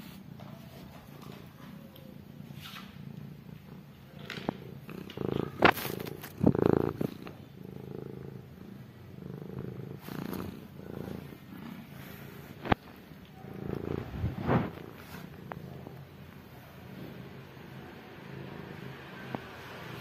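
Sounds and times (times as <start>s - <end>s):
kittens purring: 0.0s - 20.0s.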